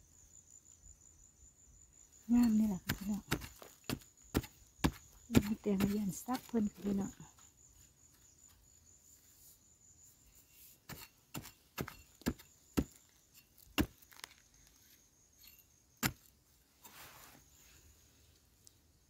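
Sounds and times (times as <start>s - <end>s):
spade blade scraping earth: 2.3s - 7.0s, 10.3s - 17.9s
spade chopping into stony soil: 2.3s - 7.0s, 10.8s - 14.4s, 15.4s - 16.3s.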